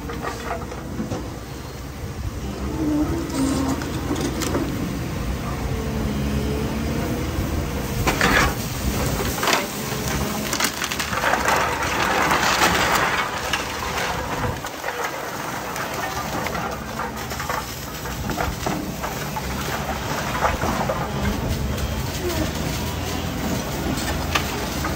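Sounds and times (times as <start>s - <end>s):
excavator engine and hydraulic hum: 0.0s - 24.9s
tiles and bricks crashing down: 8.0s - 24.9s
timber beams cracking: 8.0s - 24.9s.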